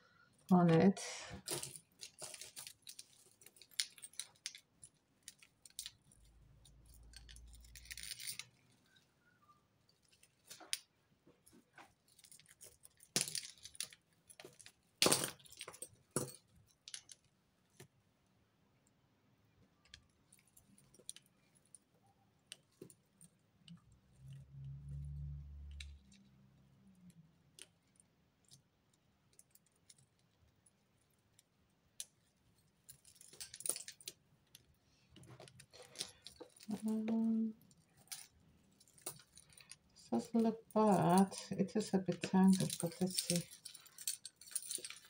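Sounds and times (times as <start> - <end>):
jewellery chains clinking and jangling: 0.3 - 17.3, 22.5 - 27.7, 32.0 - 45.0.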